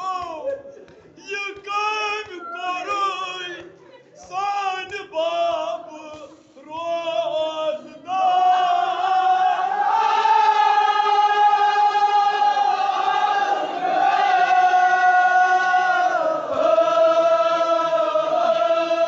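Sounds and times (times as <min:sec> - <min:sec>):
man chanting: 0:04.3 - 0:09.0
chanted chorus: 0:05.5 - 0:19.0.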